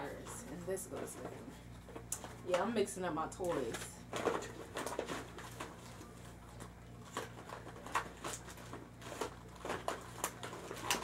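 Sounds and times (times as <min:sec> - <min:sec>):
plastic toys clicking and rustling: 0:03.4 - 0:06.0, 0:07.0 - 0:11.0.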